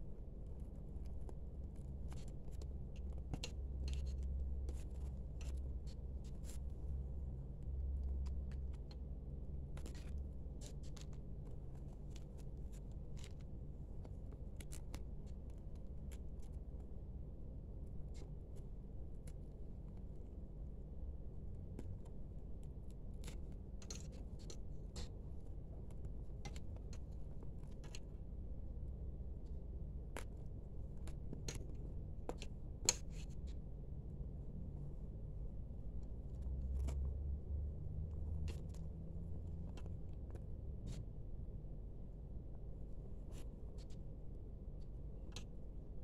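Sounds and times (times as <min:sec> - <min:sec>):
steady low hum: 0:00.0 - 0:46.0.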